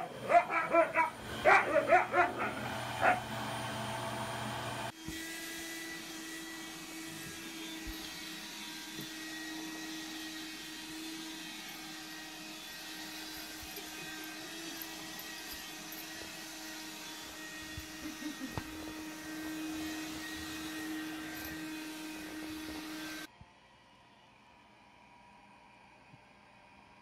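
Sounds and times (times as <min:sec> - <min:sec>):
dog barking: 0:00.0 - 0:03.3
handheld vacuum humming: 0:00.0 - 0:23.3
upright vacuum cleaner running: 0:00.0 - 0:23.3.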